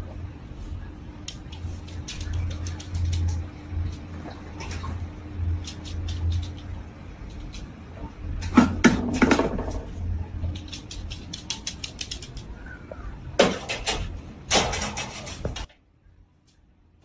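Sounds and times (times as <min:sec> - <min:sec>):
faint low hum: 0:00.0 - 0:17.0
wire dog crate rattling: 0:13.4 - 0:15.7.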